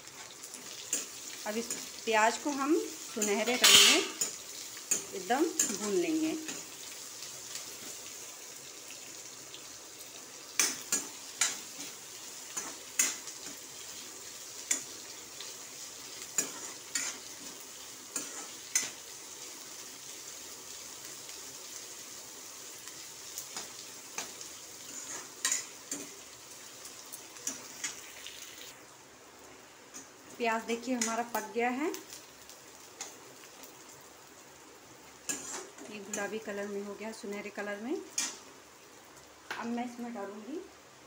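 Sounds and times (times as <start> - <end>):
onions sizzling in oil: 0.0 - 41.0
metal ladle scraping pan: 3.2 - 4.3.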